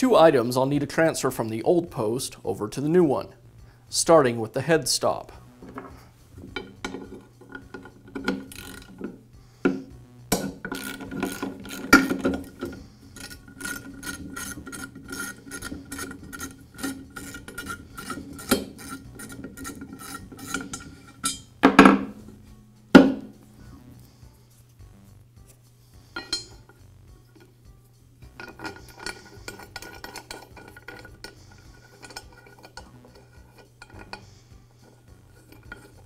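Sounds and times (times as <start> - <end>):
ratchet wrench clicking: 6.5 - 9.0, 10.4 - 21.4.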